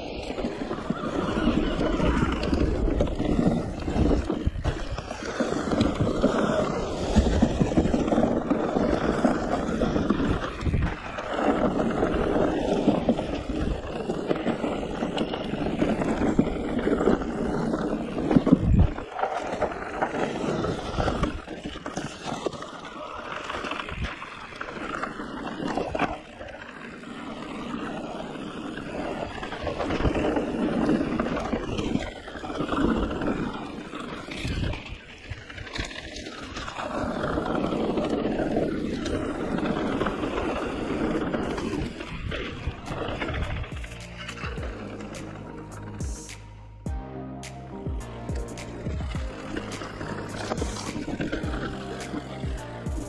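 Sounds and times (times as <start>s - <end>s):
wind on microphone: 0.0s - 19.1s, 29.0s - 36.0s, 36.6s - 46.4s, 48.0s - 53.0s
bike tyres rattling over leaves: 0.0s - 46.9s, 47.9s - 53.0s.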